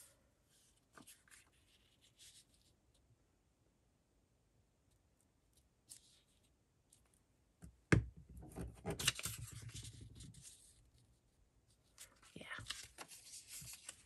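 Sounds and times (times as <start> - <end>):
paper crinkling and rustling: 0.7 - 2.7, 8.7 - 10.9, 11.8 - 14.0.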